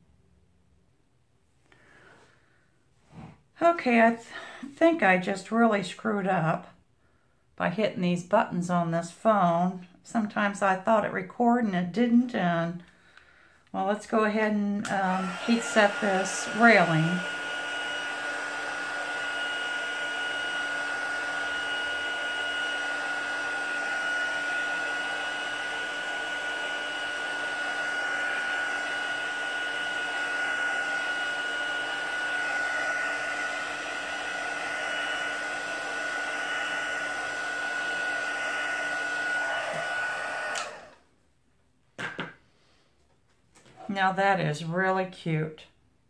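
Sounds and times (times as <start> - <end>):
heat gun blowing with whine: 14.8 - 41.0.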